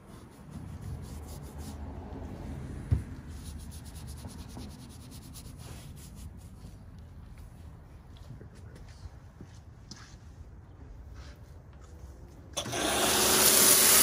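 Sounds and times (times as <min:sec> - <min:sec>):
brush scrubbing soapy foam: 0:00.0 - 0:01.9, 0:03.3 - 0:06.4.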